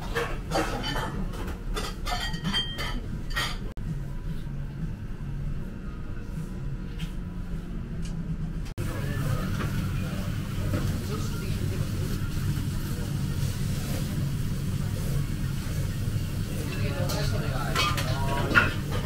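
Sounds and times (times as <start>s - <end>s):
dishes clinking and clattering: 0.0s - 3.8s, 16.4s - 19.0s.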